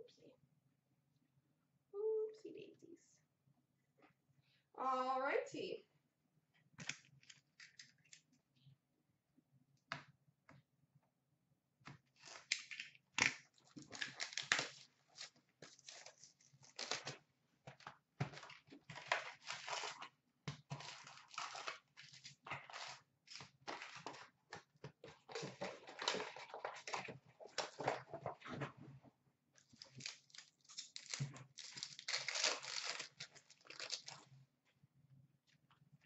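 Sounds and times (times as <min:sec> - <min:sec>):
wrappers tearing and crinkling: 0:12.2 - 0:17.2, 0:18.9 - 0:20.0, 0:20.8 - 0:24.2, 0:29.7 - 0:34.3.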